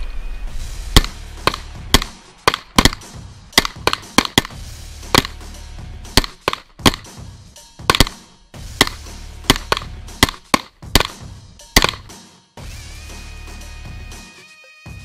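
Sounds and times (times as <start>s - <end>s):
pistol shots: 0.9s - 5.4s, 6.1s - 7.2s, 7.8s - 11.2s, 11.8s - 12.1s.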